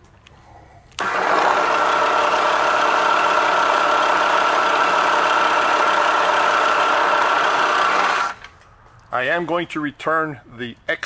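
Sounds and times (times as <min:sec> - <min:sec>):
milling machine motor whine: 0:01.0 - 0:08.5.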